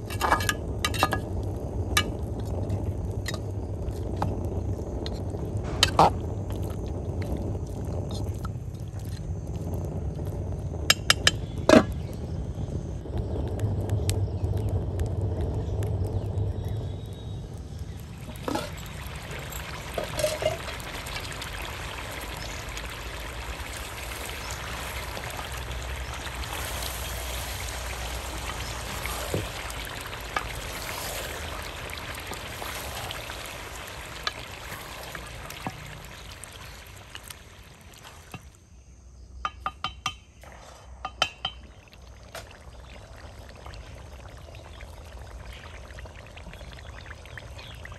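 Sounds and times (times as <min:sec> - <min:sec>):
liquid pouring into a pot: 0:17.9 - 0:38.6, 0:41.0 - 0:47.9.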